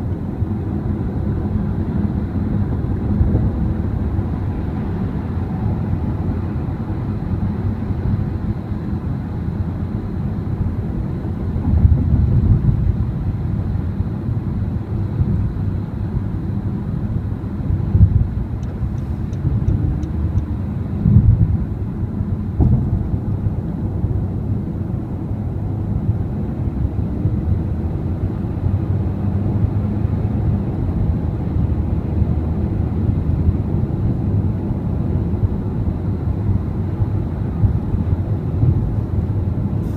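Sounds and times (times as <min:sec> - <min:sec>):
tyre and road noise: 0:16.9 - 0:39.9
car bumps: 0:22.6 - 0:23.1.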